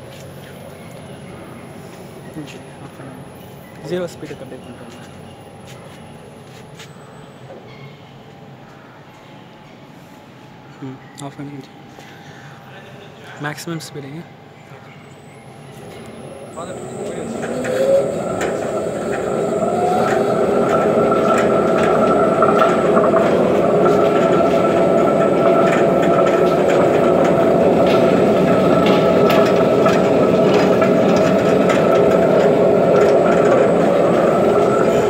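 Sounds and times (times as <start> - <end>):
stone grinder motor humming: 15.7 - 35.0.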